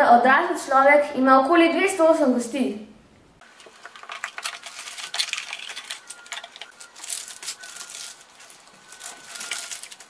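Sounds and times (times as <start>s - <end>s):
plastic packaging crinkling: 3.4s - 10.0s.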